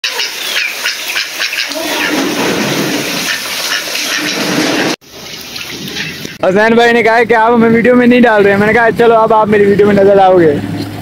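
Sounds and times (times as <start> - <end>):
wavering pitched calls: 0.0 - 6.4.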